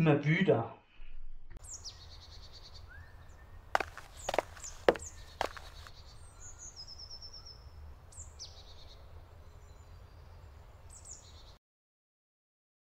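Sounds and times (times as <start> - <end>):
songbirds chirping: 1.6 - 11.6.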